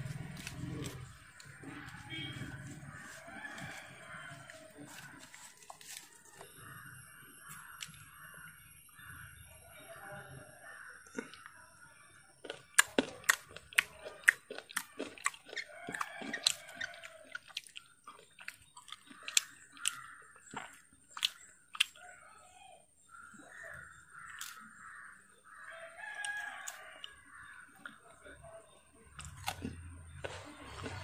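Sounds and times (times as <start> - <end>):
rooster crowing: 0.0 - 6.4, 15.0 - 17.4, 25.6 - 27.6.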